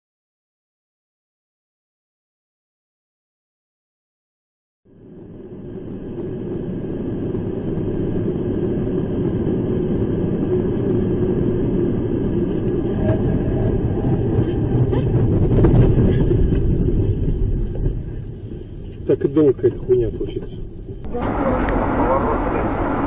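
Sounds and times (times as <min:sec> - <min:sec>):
car cabin road rumble: 0:05.3 - 0:23.0.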